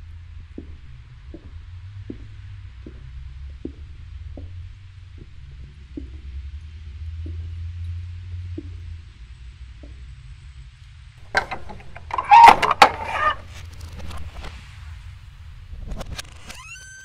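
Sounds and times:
low steady hum: 0.0s - 16.8s
loud clicks and knocks: 11.2s - 14.2s.

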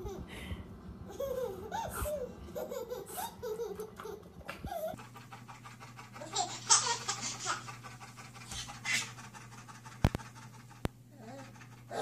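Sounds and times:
baby laughing: 1.1s - 5.0s, 6.1s - 7.8s
dog panting: 4.6s - 12.0s.

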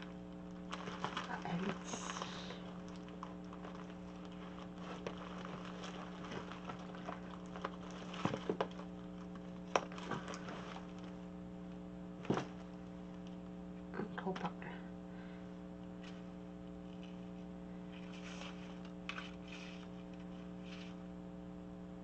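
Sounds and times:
rummaging in plastic box: 0.0s - 11.3s, 16.0s - 21.0s
steady low hum: 0.0s - 22.0s.

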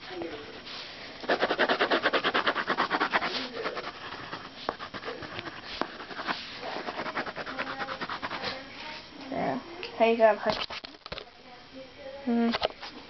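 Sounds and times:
crayon scribbling on paper: 1.2s - 8.6s.

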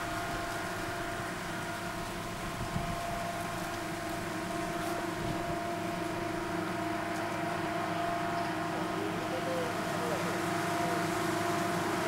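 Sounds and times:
engine drone with held tones: 0.0s - 12.0s.

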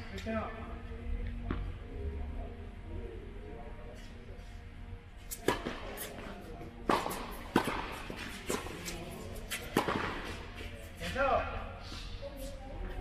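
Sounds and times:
tennis ball bouncing on court: 6.8s - 8.9s, 9.5s - 10.4s
tennis ball struck by rackets: 6.8s - 10.4s.

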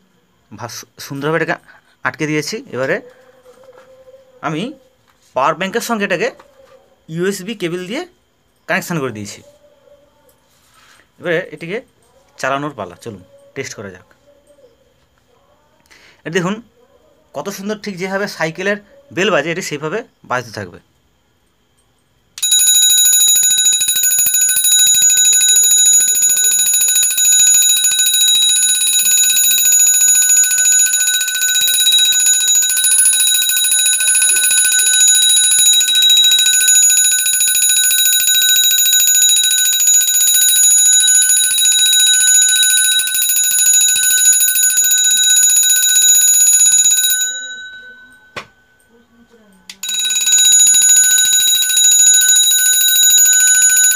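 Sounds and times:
rapid metallic bell ringing: 22.4s - 49.0s, 49.8s - 53.9s.

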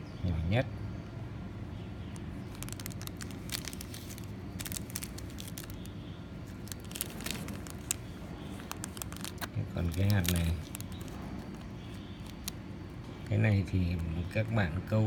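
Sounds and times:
steady low hum: 0.0s - 15.0s
plastic packets crinkling: 2.1s - 12.6s.

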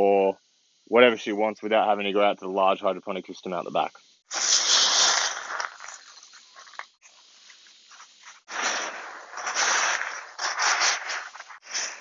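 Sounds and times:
clay pebbles rattling and crunching: 4.7s - 12.0s.

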